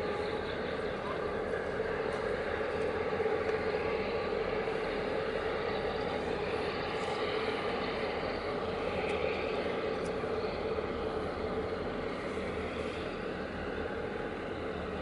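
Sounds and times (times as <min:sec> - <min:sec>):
engine drone: 0:00.0 - 0:15.0.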